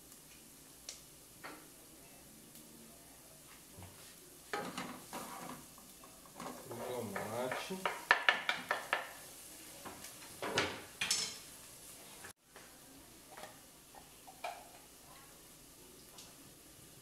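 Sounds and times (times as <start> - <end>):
onion sizzling: 0.0 - 17.0
cutting board knocking pot: 7.1 - 9.1.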